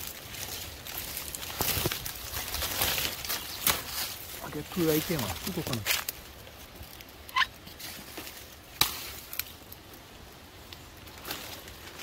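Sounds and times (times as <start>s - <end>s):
twig snapping: 0.0s - 4.3s, 5.4s - 7.4s, 8.1s - 9.9s
footsteps in dry leaves: 0.0s - 9.9s, 10.8s - 12.0s.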